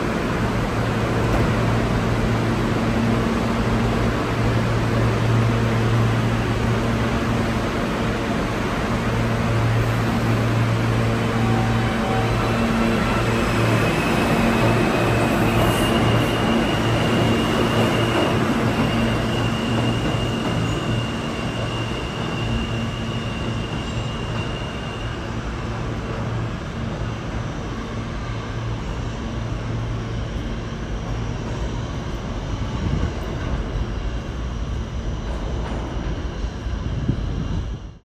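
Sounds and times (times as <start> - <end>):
subway train rumble and hum: 0.0 - 38.0
high steady squeal: 0.8 - 29.6.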